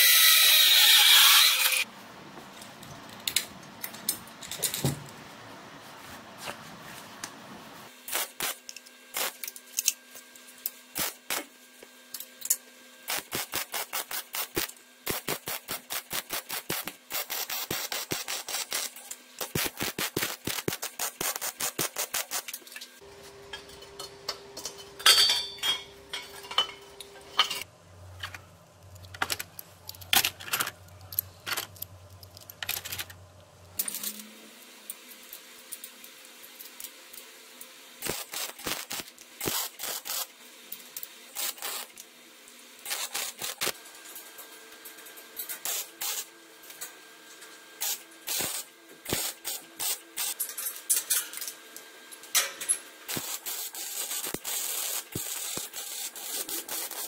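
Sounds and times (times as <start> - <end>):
welding crackles: 8.1 - 9.5, 11.0 - 11.5, 13.1 - 22.6, 38.0 - 40.3, 41.3 - 42.0, 42.8 - 43.9, 47.8 - 50.4, 53.1 - 57.0
metal tubes clinking and knocking: 23.5 - 28.4.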